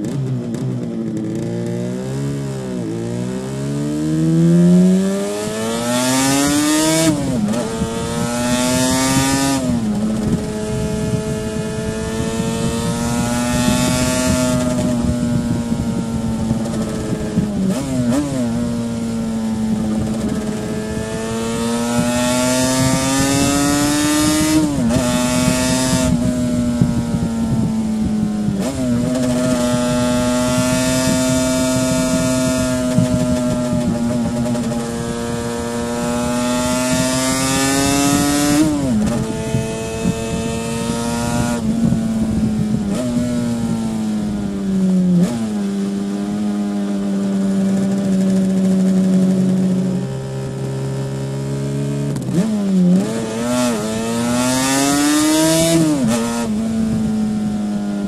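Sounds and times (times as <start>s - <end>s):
motorcycle engine accelerating: 0.0s - 58.0s
wind rushing past microphone: 2.2s - 58.0s.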